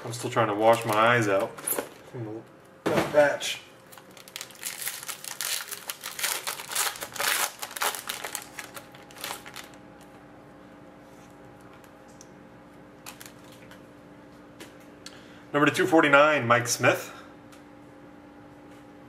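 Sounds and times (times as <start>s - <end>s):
faint steady hum: 0.0s - 19.0s
foil pack crinkling and tearing: 0.2s - 2.0s, 3.9s - 9.8s, 13.0s - 13.7s.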